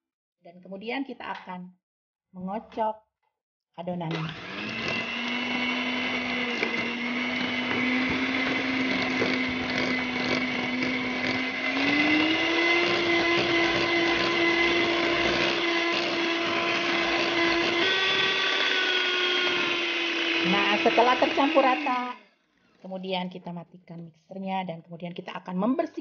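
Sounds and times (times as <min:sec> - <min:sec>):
electric hand mixer whining: 0:04.1 - 0:22.2.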